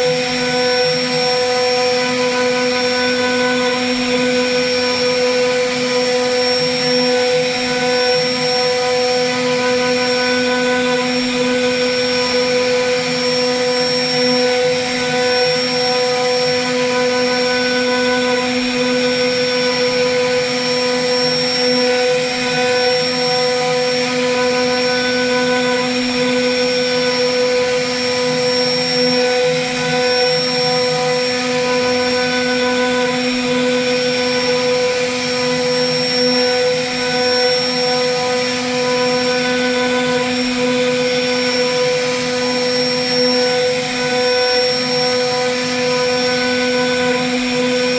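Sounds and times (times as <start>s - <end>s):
router spindle whine: 0.0s - 47.9s.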